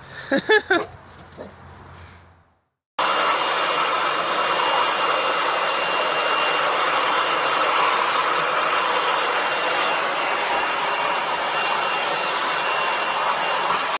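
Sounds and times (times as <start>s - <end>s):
hair dryer blowing: 3.0s - 13.9s.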